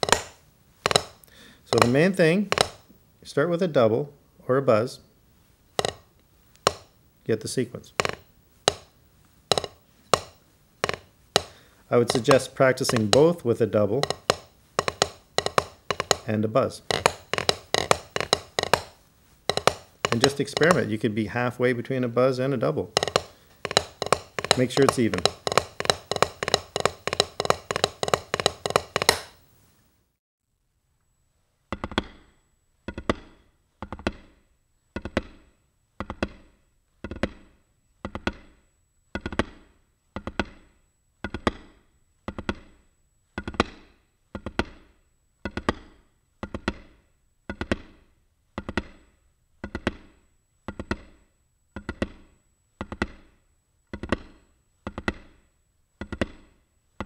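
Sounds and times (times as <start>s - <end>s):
drumsticks on practice pad: 0.0s - 3.0s, 5.7s - 29.5s.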